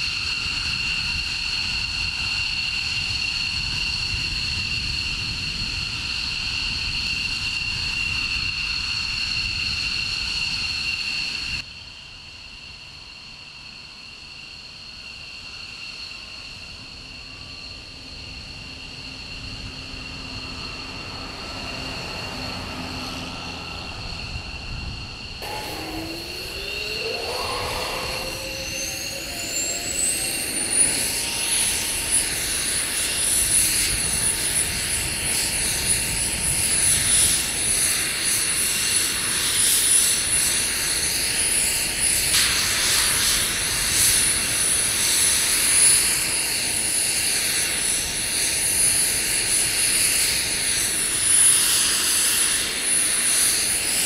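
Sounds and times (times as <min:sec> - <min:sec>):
jet engines whining: 0:12.6 - 0:54.0.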